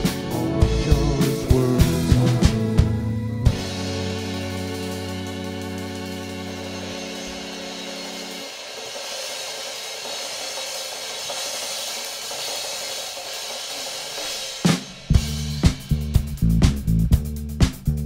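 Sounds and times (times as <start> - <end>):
keyboard chord: 0.0 - 8.6
drum kit hits: 0.0 - 18.0
cymbals washing: 3.5 - 16.4.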